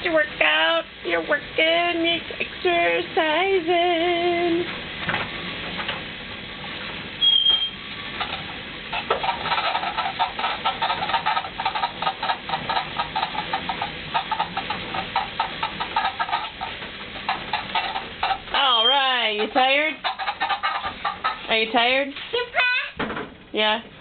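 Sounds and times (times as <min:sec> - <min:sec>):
short high squeak: 0:07.2 - 0:07.8, 0:18.6 - 0:19.0
exercise machine creaking and clattering: 0:07.2 - 0:23.4.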